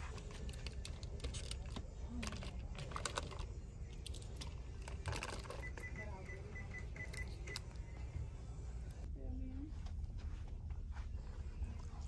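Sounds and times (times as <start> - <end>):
keys clicking and tapping: 0.0 - 7.8.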